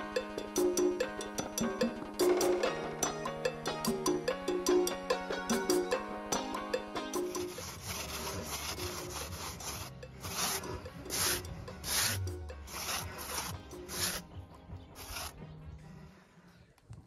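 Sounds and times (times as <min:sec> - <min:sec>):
float rasping over wet render: 0:07.2 - 0:14.3, 0:15.0 - 0:15.4.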